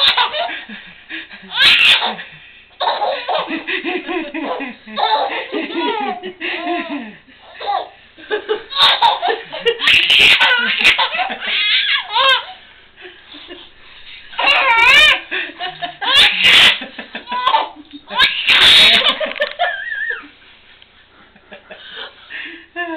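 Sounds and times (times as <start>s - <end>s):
baby laughing: 0.0s - 0.6s, 1.4s - 8.0s, 8.6s - 12.6s, 14.3s - 20.3s.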